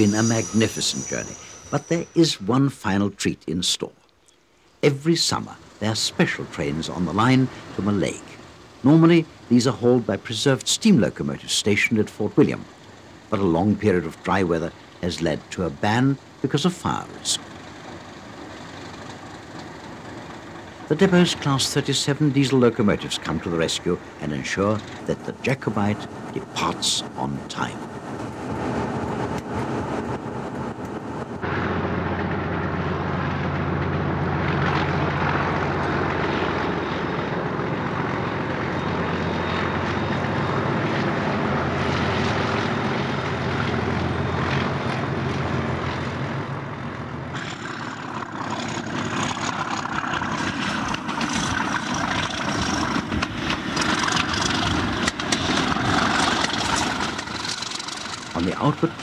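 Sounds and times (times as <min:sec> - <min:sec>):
diesel locomotive engine drone: 0:00.0 - 0:03.9, 0:04.6 - 0:59.0
faint high whine: 0:00.0 - 0:19.2, 0:19.8 - 0:53.0
train rattling and clicking: 0:47.3 - 0:59.0.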